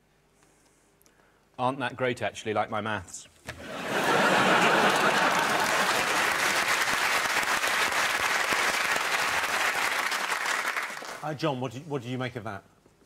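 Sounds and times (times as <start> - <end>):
audience applauding: 3.8 - 11.2.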